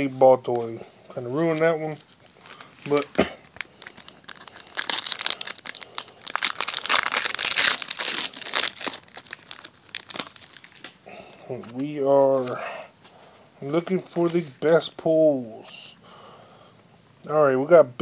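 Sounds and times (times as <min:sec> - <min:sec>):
foil wrapper tearing and crinkling: 0:01.4 - 0:11.0.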